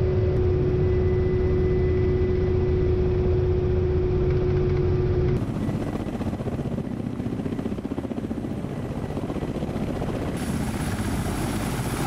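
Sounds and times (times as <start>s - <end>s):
helicopter rotors chopping: 4.4s - 12.0s.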